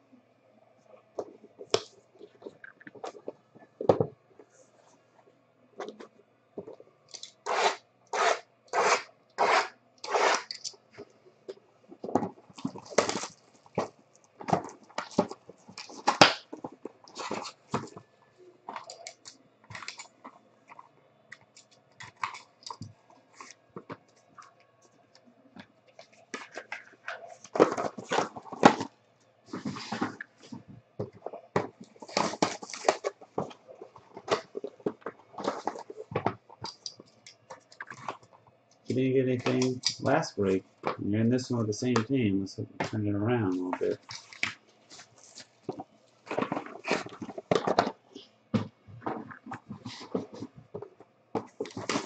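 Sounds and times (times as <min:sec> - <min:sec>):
box slit open with cutter: 0:07.4 - 0:10.6
cardboard boxes scraping and rustling: 0:29.5 - 0:30.3, 0:31.9 - 0:36.0, 0:44.9 - 0:47.9.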